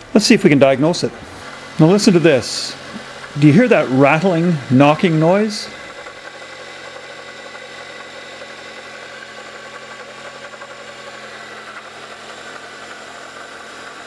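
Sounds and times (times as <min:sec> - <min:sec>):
car engine idling: 0:00.0 - 0:14.0
fast rattling knocking noise: 0:05.9 - 0:14.0.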